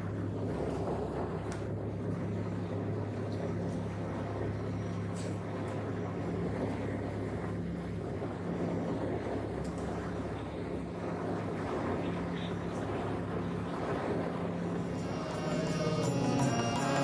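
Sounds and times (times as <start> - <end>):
propeller plane engine drone: 0.0 - 17.0.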